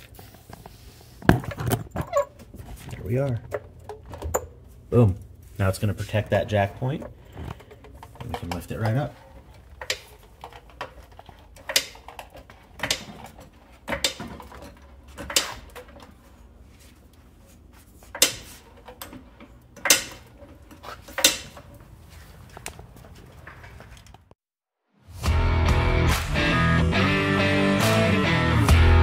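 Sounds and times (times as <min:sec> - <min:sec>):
car jack metallic clinks: 0:19.8 - 0:21.7.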